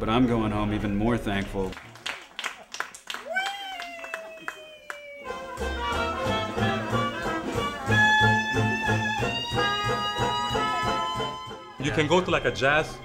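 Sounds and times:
horns holding long notes: 5.2s - 13.0s
swing jazz band playing: 5.2s - 13.0s
plucked upright bass: 5.4s - 11.3s.

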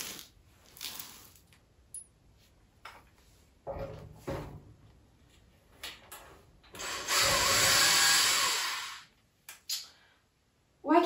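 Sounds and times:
small motor tool whirring: 6.8s - 9.1s.

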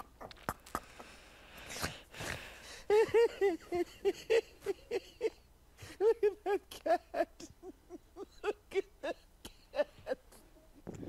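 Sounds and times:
man laughing: 2.9s - 10.3s.

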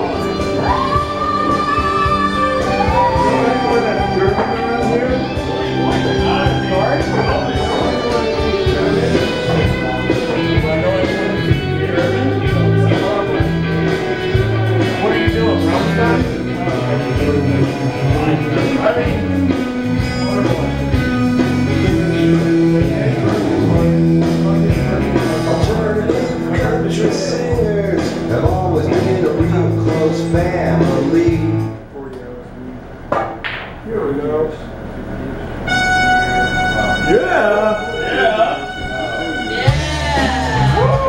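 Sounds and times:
backing track with guitar and beat: 0.0s - 31.8s, 35.7s - 41.0s
man singing into a microphone: 15.0s - 19.3s, 21.6s - 31.6s.

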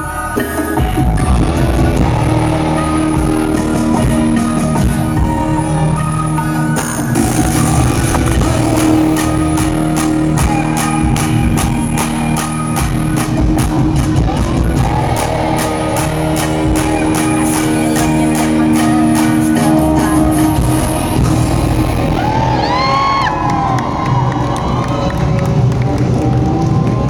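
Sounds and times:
live dance-pop music with beat: 0.0s - 27.0s
crowd cheering and whooping: 7.1s - 27.0s.

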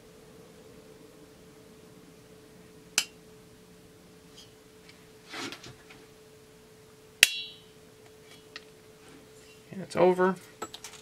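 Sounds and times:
faint hum: 0.0s - 11.0s
metal scrape: 5.2s - 5.7s.

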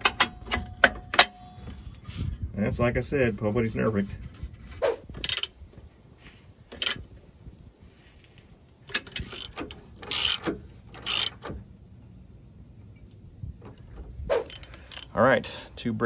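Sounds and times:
torque wrench ratchet clicking: 9.0s - 11.5s.

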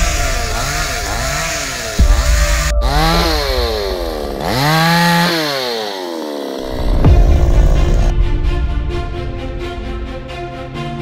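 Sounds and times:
chainsaw cutting branch: 0.0s - 7.9s
chainsaw engine revving: 0.0s - 8.1s.

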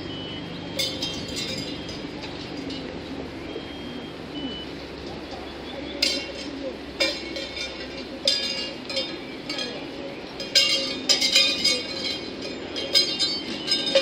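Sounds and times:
metallic clinks and clanks: 0.7s - 3.0s, 6.0s - 14.0s.

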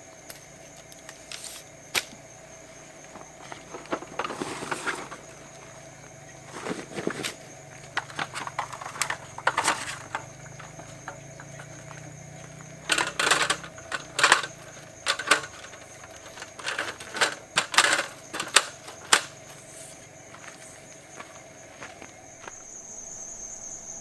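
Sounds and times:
aluminium tabletop clattering: 6.5s - 11.8s, 12.8s - 19.4s.

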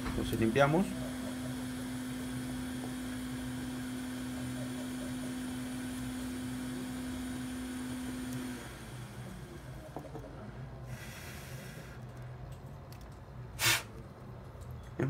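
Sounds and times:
electrical hum: 0.0s - 15.0s
faint hiss: 13.6s - 13.9s.

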